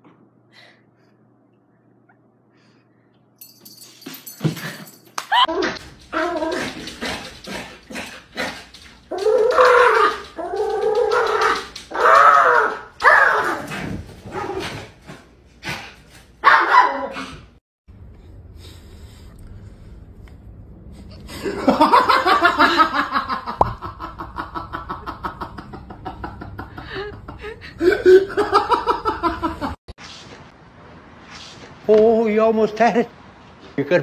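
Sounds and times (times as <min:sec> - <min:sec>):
person laughing hard: 0:21.4 - 0:29.8.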